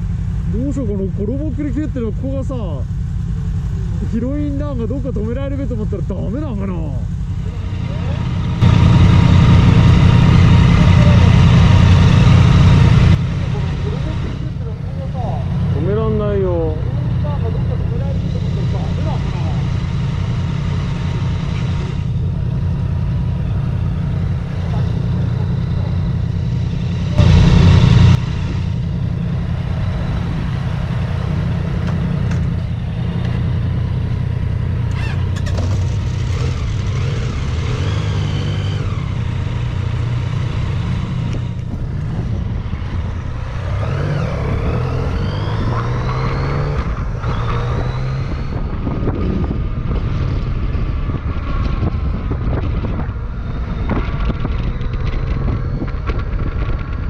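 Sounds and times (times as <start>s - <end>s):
motorcycle engine revving: 0.0s - 57.0s
loud rush of noise: 7.4s - 14.6s, 25.7s - 29.1s.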